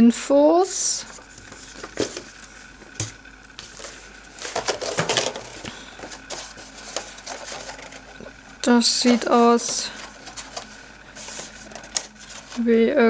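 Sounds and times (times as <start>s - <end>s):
plastic tray crinkling: 3.6s - 12.7s.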